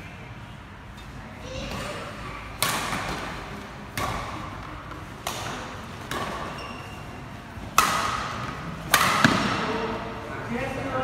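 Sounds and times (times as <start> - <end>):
badminton racket hitting shuttlecock: 2.6 - 6.6, 7.7 - 9.7.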